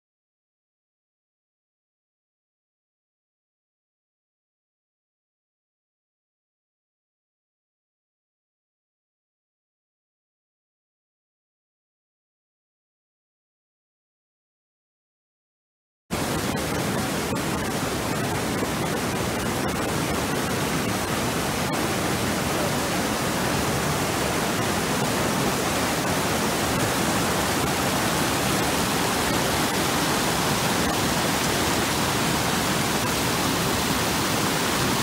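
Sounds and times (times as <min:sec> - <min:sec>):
stream rushing over boulders: 0:16.2 - 0:35.0.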